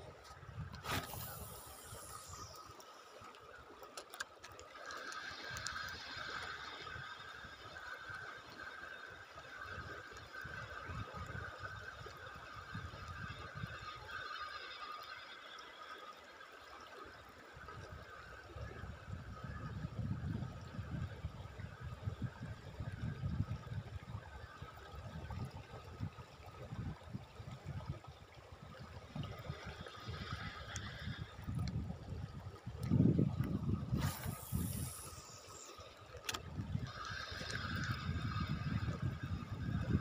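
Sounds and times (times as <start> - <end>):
wind rumbling on microphone: 0.0 - 2.8, 9.5 - 14.2, 17.6 - 40.0.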